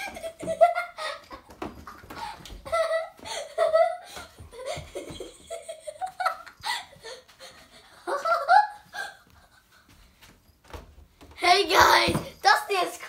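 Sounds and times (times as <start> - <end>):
people giggling: 0.0 - 7.2, 7.9 - 9.7.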